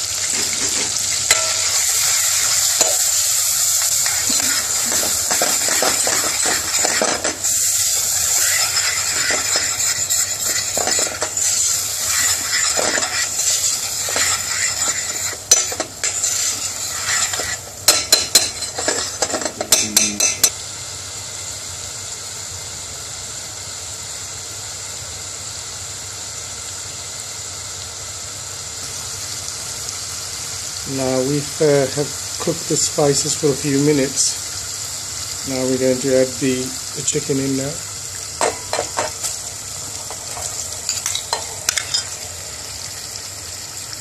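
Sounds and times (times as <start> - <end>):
spices sizzling in oil: 0.0 - 44.0
metal spoon scraping saucepan: 4.0 - 7.5, 8.1 - 20.5
spoon clinking against pan: 17.3 - 20.5.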